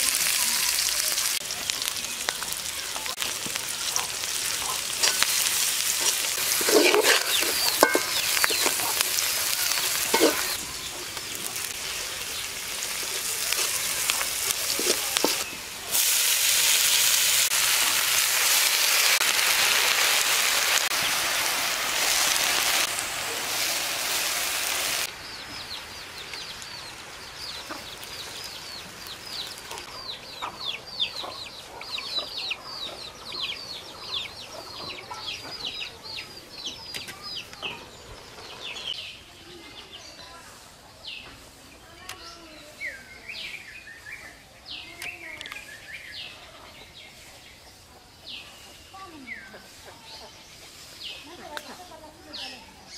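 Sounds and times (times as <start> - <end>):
loud steady hiss: 0.0 - 29.7
songbirds chirping: 0.1 - 16.4, 23.6 - 52.9.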